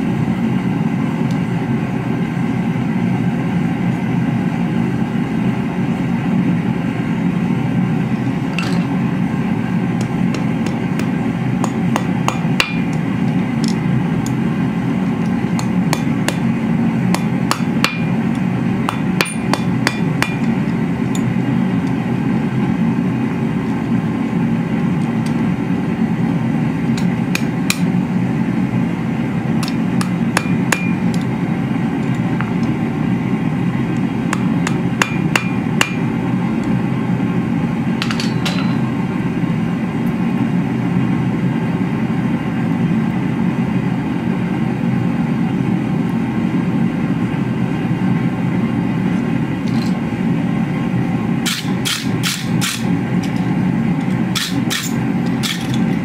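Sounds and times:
hammer striking steel on anvil: 0:10.0 - 0:14.4, 0:15.5 - 0:21.4, 0:26.9 - 0:28.0, 0:29.6 - 0:31.3, 0:34.3 - 0:36.2, 0:38.0 - 0:39.0, 0:51.4 - 0:53.5, 0:54.1 - 0:55.9.

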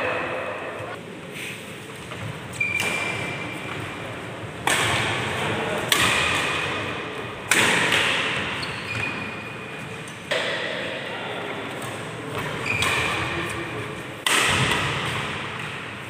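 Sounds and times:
rackets striking shuttlecock: 0:04.6 - 0:05.2, 0:05.9 - 0:06.7, 0:07.5 - 0:08.5, 0:14.2 - 0:16.0.

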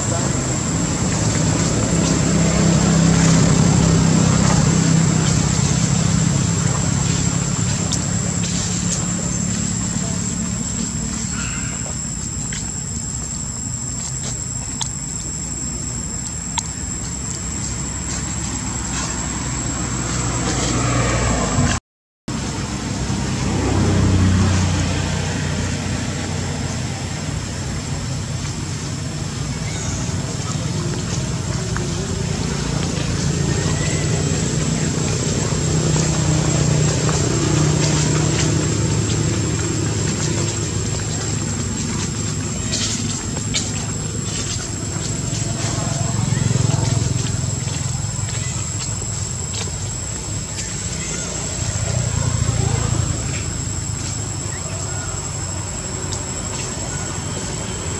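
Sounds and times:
thin high steady tone: 0:00.0 - 0:21.7
motor humming: 0:00.0 - 0:21.8, 0:24.1 - 0:57.9.

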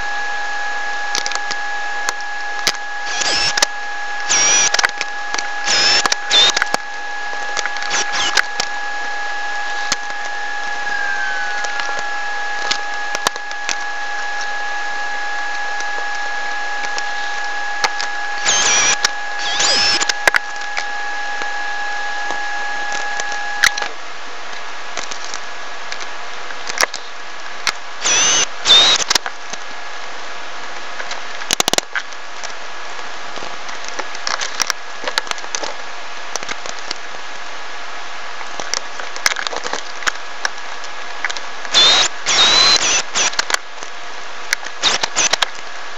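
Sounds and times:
high whine: 0:00.0 - 0:25.1, 0:27.9 - 0:29.4, 0:41.7 - 0:43.5, 0:44.7 - 0:45.9
metal tuning machines clicking: 0:02.1 - 0:08.7.

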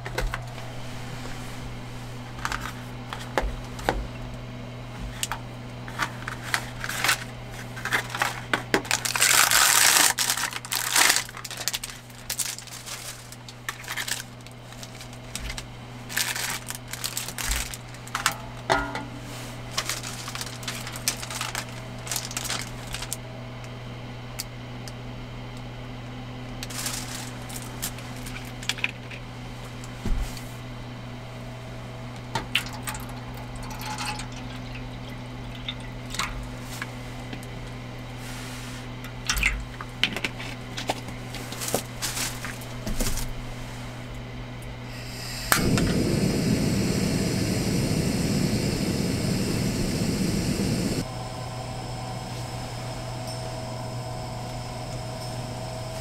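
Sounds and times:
plastic packaging crinkling: 0:05.9 - 0:18.7, 0:19.6 - 0:23.2, 0:26.6 - 0:29.0, 0:40.8 - 0:43.4
low hum: 0:44.8 - 0:56.0.

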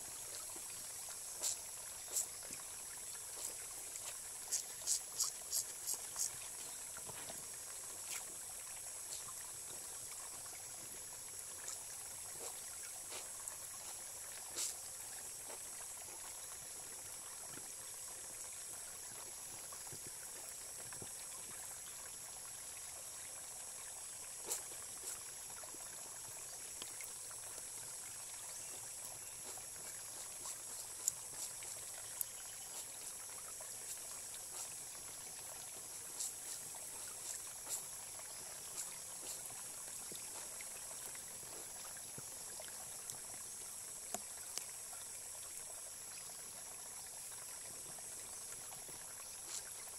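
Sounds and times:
stream babbling over pebbles: 0:00.0 - 0:49.9
small sharp splashes: 0:00.3 - 0:09.8, 0:28.6 - 0:40.7.

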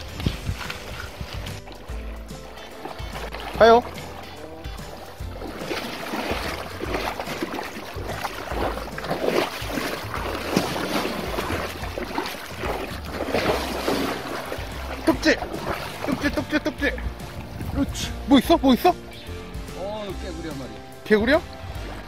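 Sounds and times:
wind rumbling on microphone: 0:00.0 - 0:03.6, 0:05.2 - 0:18.3
swishing through grass and water: 0:00.0 - 0:22.0.

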